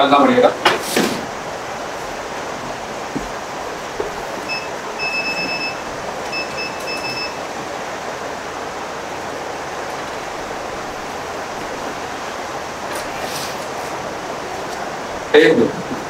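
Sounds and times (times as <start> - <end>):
steady airy hiss: 0.0 - 16.0
high-pitched electronic beeps: 4.5 - 7.4.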